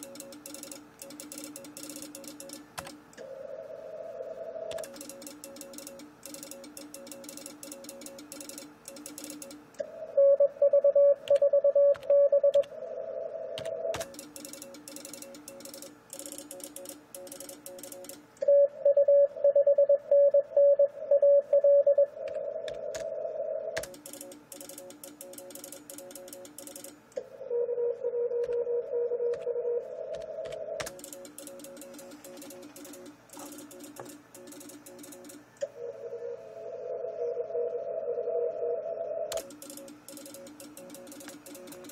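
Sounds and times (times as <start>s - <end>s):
computer keyboard typing: 0.0s - 3.0s, 4.7s - 9.8s, 11.2s - 12.7s, 13.6s - 18.3s, 23.8s - 27.0s, 30.1s - 35.6s, 39.3s - 41.9s
faint morse signals: 3.2s - 41.9s
morse code beeping tone: 10.2s - 12.7s, 18.5s - 22.2s.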